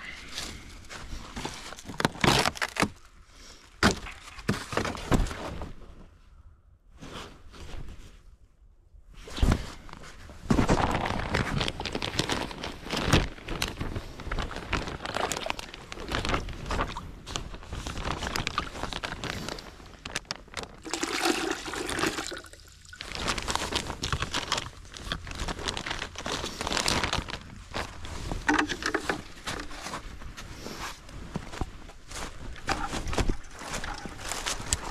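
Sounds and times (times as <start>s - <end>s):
plastic bag crinkling: 1.4s - 2.9s, 10.6s - 30.4s, 32.1s - 34.9s
sap pouring into plastic bucket: 20.8s - 23.8s, 28.4s - 29.8s, 32.6s - 34.9s.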